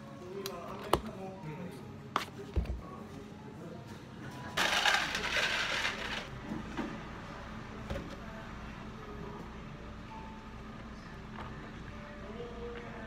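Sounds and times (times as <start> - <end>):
ice rattling into plastic cup: 4.6 - 6.3.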